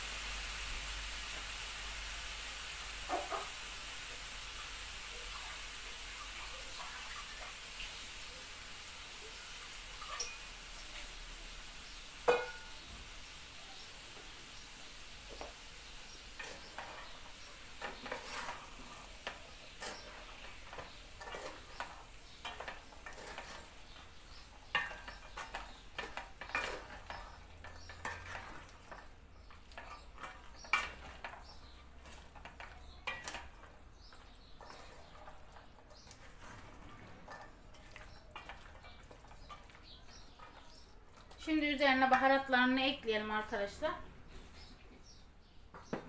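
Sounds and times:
beans sizzling: 0:00.0 - 0:46.0
utensil scraping a pot: 0:16.2 - 0:42.3.

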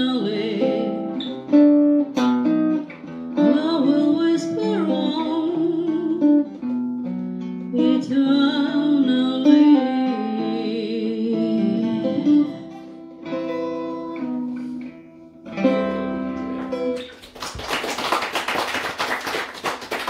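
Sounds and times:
electric guitar chords ringing: 0:08.7 - 0:17.0
audience applauding: 0:17.0 - 0:20.0.

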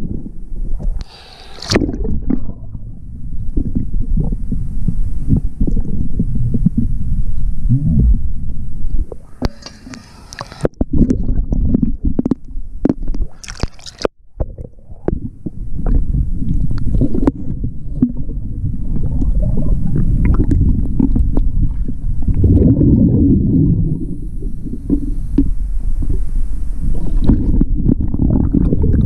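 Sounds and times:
exhaled regulator bubbles: 0:00.0 - 0:29.0
low underwater rumble: 0:00.0 - 0:29.0
water sloshing and gurgling: 0:00.0 - 0:29.0
water splashing: 0:00.8 - 0:02.8, 0:09.1 - 0:25.5.

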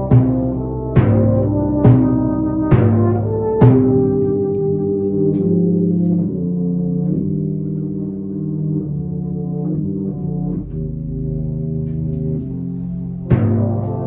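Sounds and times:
brass band playing slow chords: 0:00.0 - 0:14.0.

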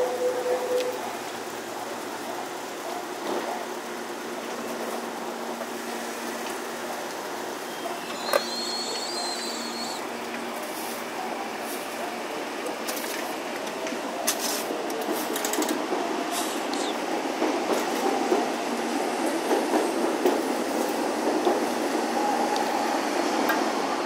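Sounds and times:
rail and street noise: 0:00.0 - 0:24.0
rising train whine: 0:00.0 - 0:24.0
train steady hum: 0:00.0 - 0:24.0
short high squeal: 0:07.7 - 0:10.0
wheels clicking over rail joints: 0:12.6 - 0:18.6.

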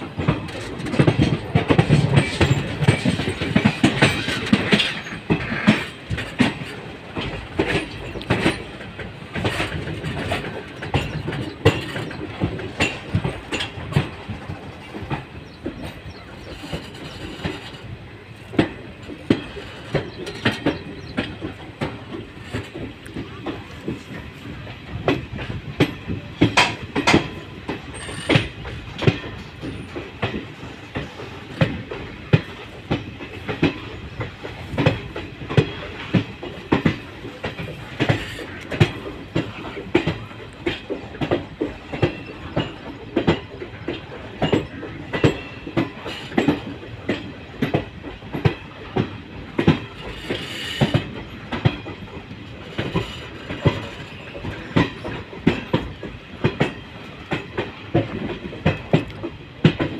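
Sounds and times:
steady train rumble: 0:00.0 - 0:59.9
train wheels clicking over rail joints: 0:00.0 - 0:59.9.

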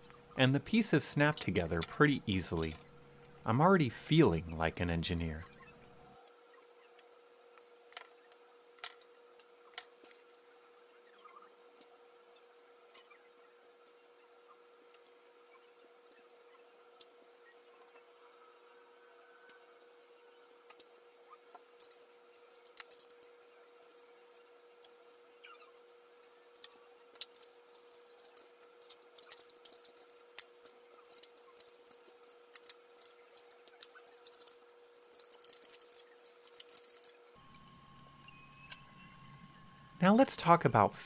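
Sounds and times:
faint steady hum: 0:00.0 - 0:41.0
plastic parts clicking and snapping: 0:26.6 - 0:37.1.

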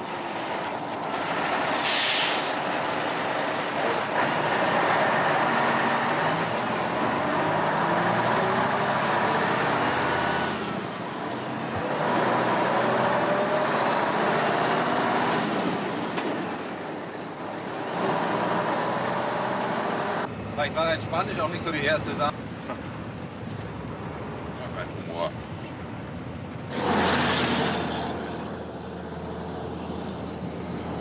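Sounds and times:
diesel truck engine under load: 0:00.0 - 0:31.0
tyres on gravel road: 0:00.0 - 0:31.0
short hiss: 0:01.7 - 0:02.5.

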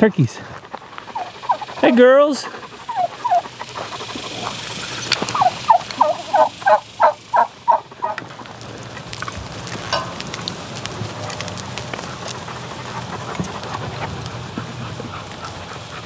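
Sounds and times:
turkey calling: 0:00.8 - 0:08.5.

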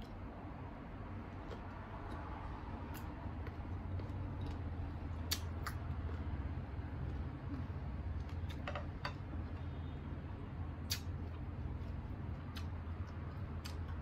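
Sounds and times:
steady low hum: 0:00.0 - 0:14.0
chewing crisp mango: 0:01.0 - 0:08.6, 0:10.8 - 0:14.0.

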